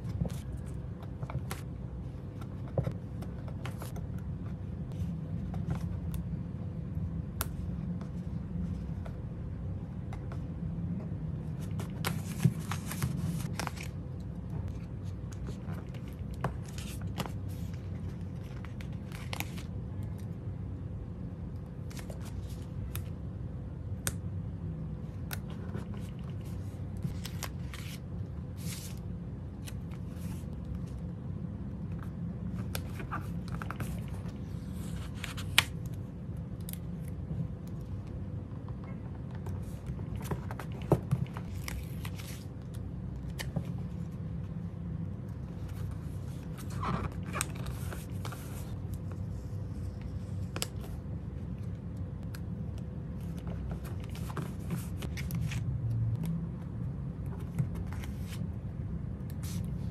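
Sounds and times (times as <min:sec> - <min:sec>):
steady low hum: 0:00.0 - 0:59.9
paper rustling: 0:11.4 - 0:14.0, 0:45.5 - 0:51.0.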